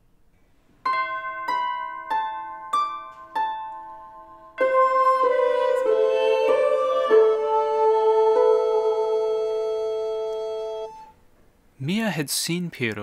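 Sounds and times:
harp plucked notes: 0.8s - 11.2s
band holding sustained notes: 4.1s - 11.1s.

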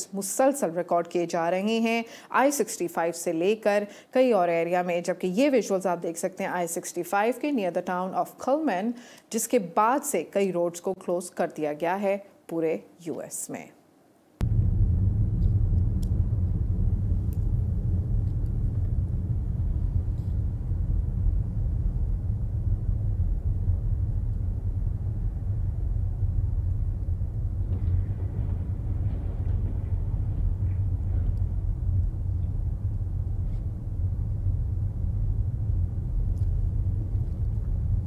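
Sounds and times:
road and engine rumble: 14.4s - 38.0s.

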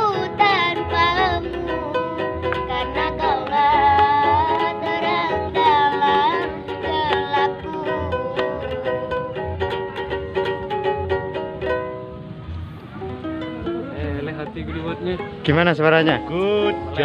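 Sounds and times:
young voice singing: 0.0s - 9.7s
ukulele strumming: 0.0s - 17.0s.

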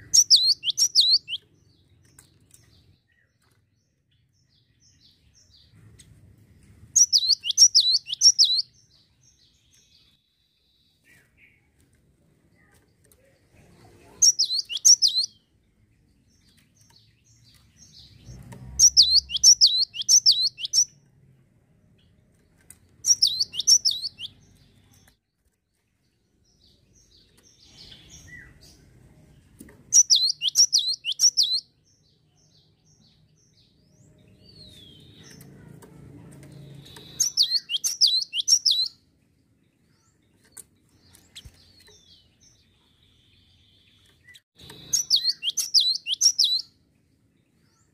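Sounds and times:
tit birdsong: 0.0s - 5.7s, 7.0s - 11.7s, 14.1s - 21.0s, 23.0s - 25.2s, 29.9s - 35.6s, 36.6s - 47.9s.

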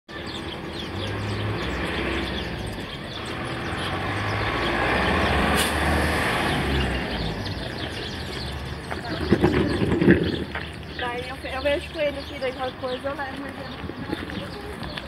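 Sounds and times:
bird chirps: 6.4s - 15.0s.

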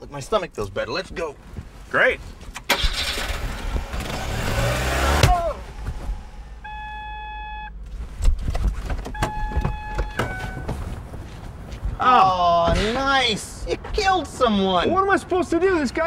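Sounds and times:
car engine revving: 2.7s - 8.2s
electronic beeps: 6.5s - 7.7s, 9.1s - 10.7s.

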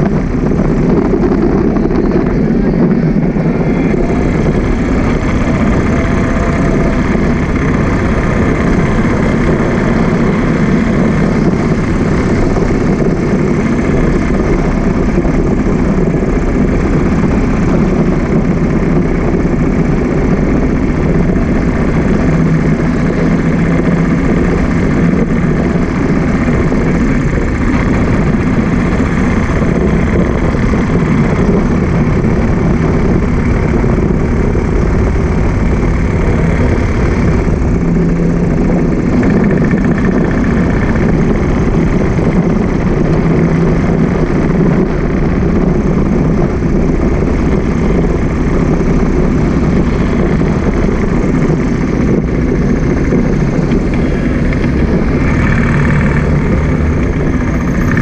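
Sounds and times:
motorcycle engine running: 0.0s - 58.0s
road noise: 0.0s - 58.0s.

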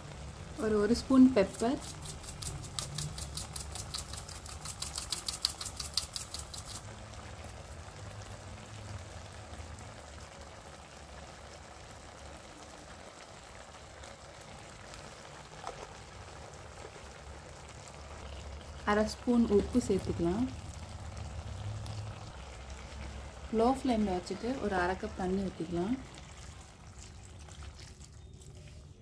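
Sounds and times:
pepper grinder clicking: 1.8s - 6.8s
low steady background noise: 6.7s - 29.0s.

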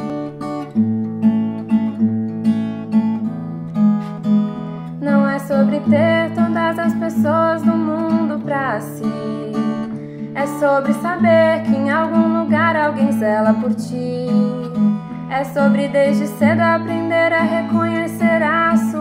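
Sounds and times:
acoustic guitar strumming: 0.0s - 19.0s
woman singing: 5.0s - 19.0s.

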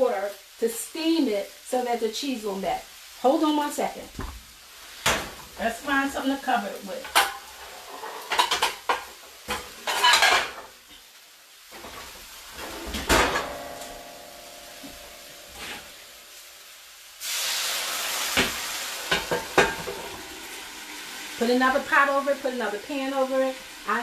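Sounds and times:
water sizzling on hot skillet: 0.0s - 24.0s
pots and pans clattering: 7.0s - 11.0s, 11.7s - 16.0s, 18.3s - 20.5s
metal pan ringing: 13.1s - 15.6s.

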